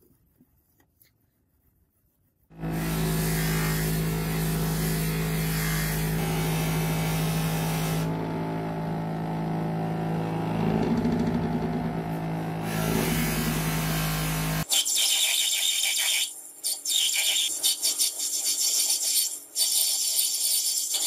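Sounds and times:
bench grinder motor humming: 2.5 - 14.7.

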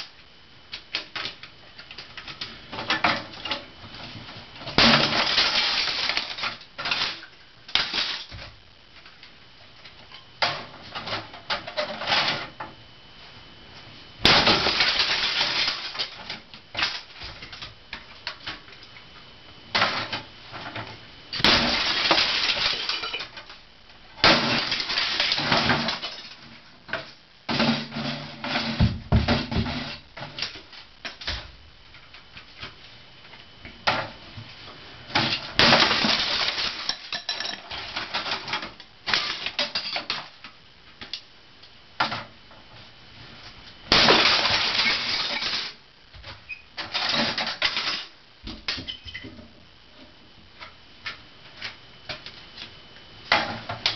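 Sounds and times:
hammer smashing plastic: 4.7 - 8.5, 14.2 - 17.6, 21.4 - 23.5, 24.2 - 31.4, 35.2 - 40.3, 43.9 - 45.8
plastic cracking and shattering: 21.4 - 23.6, 35.2 - 41.2, 43.9 - 45.8.

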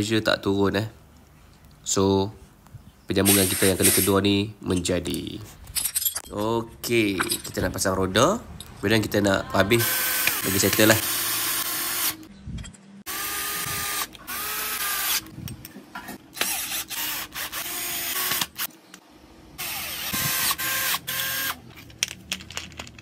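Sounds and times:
cordless drill driving screws: 16.4 - 18.7, 19.6 - 21.6.

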